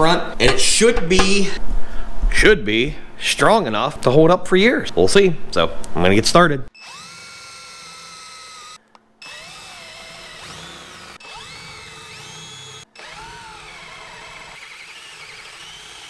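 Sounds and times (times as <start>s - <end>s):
cordless drill boring through steel: 6.8s - 16.0s.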